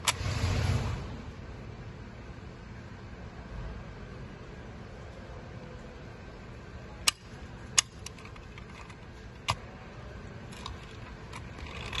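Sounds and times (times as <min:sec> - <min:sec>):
toy van doors clicking shut: 0:07.1 - 0:09.6.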